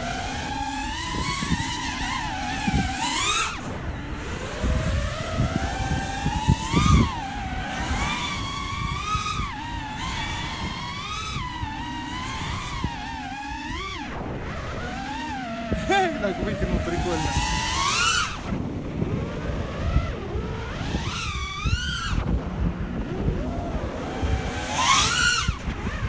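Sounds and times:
drone motors whining: 0.0 - 26.0
wind rushing: 0.0 - 26.0.

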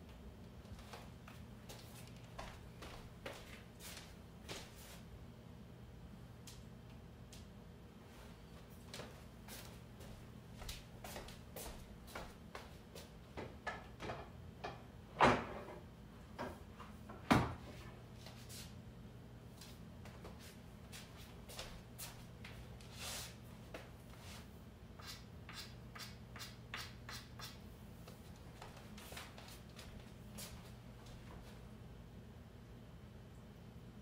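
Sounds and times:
faint low hum: 0.0 - 34.0.

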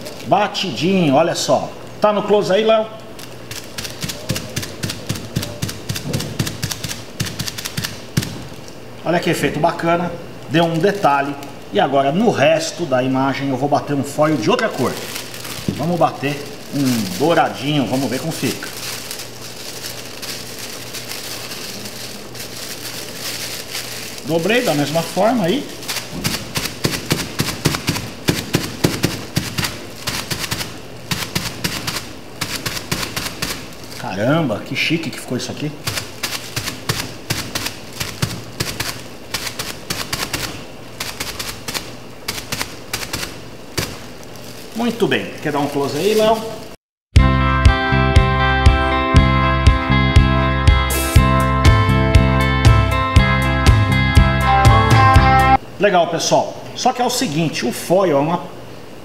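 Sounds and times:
rapid light tapping of foil: 3.1 - 8.8, 10.5 - 11.8, 14.1 - 34.3, 35.8 - 46.8.

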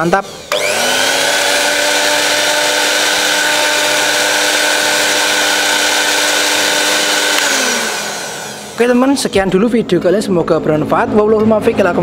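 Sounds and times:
blender motor whine: 0.0 - 9.3.

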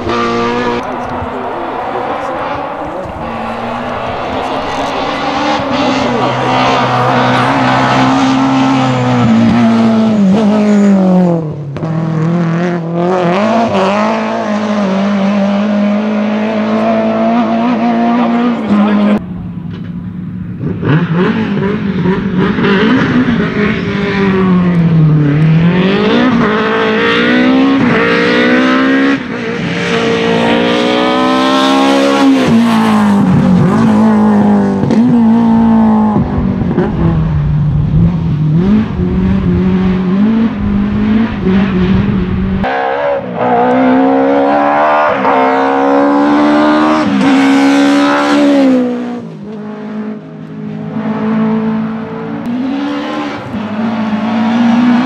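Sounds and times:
rally car engines revving: 0.0 - 55.0.

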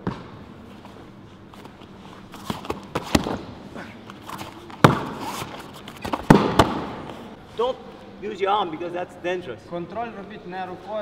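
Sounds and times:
body slaps and thuds on foam mats: 4.7 - 7.2.

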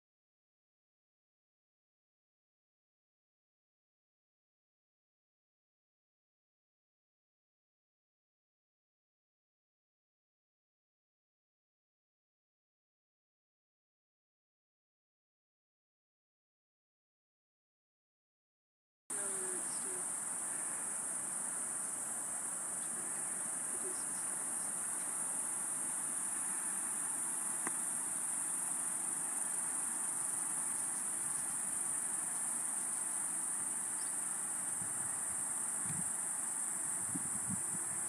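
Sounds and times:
insect chorus: 19.1 - 38.0
outdoor ambient hiss: 19.1 - 38.0.

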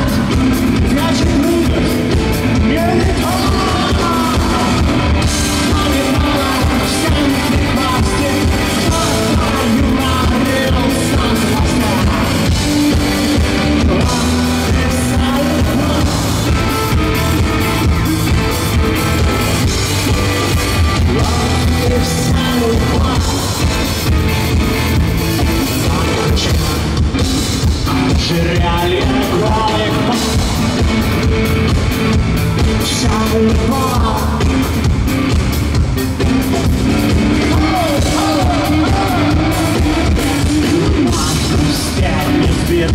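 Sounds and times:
man singing: 0.0 - 31.4, 32.6 - 34.9, 36.2 - 42.9
live rock band: 0.0 - 42.9.

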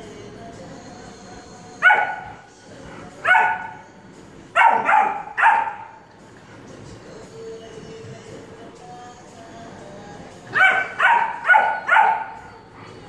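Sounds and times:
dog barking: 1.8 - 2.5, 3.2 - 3.9, 4.6 - 6.0, 10.5 - 12.6.

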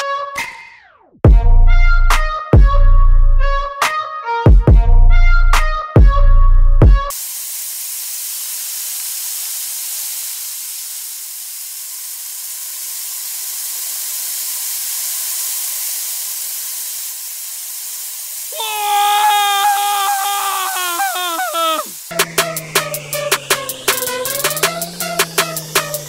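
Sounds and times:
sand pouring: 7.1 - 22.2.

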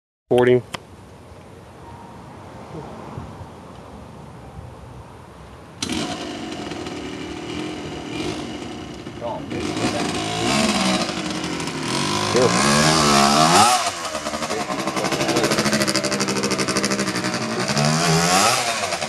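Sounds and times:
small engine revving: 5.8 - 19.0.

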